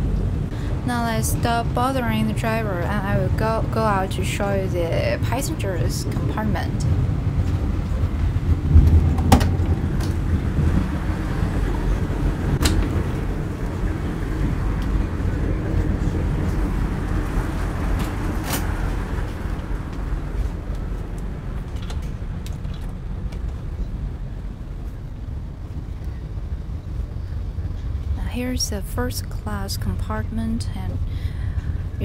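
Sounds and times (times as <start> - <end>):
train rumbling from inside: 0.0 - 32.0
sharp knocks: 8.8 - 9.8.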